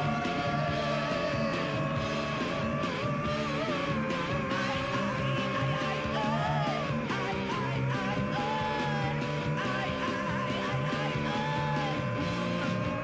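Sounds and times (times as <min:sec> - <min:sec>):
rock music: 0:00.0 - 0:13.0.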